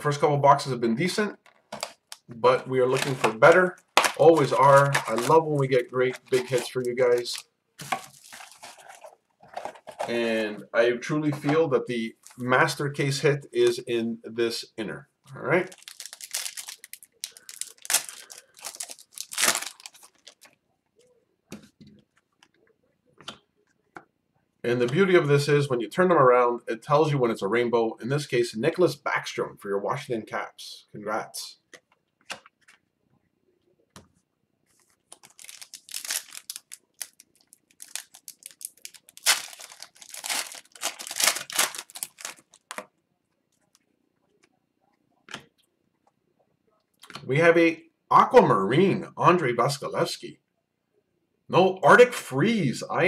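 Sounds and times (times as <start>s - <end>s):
wrapper crinkling being torn open: 1.6s - 9.1s, 15.7s - 20.6s, 35.1s - 42.9s.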